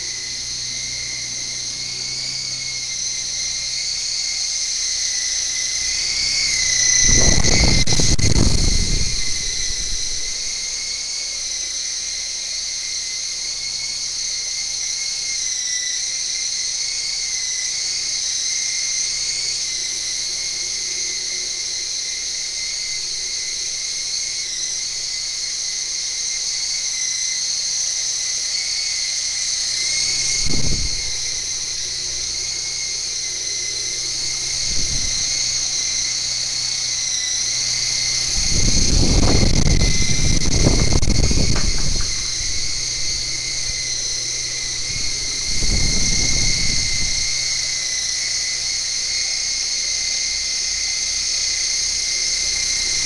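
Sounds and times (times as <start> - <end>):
toy helicopter motors whining: 0.0 - 53.0.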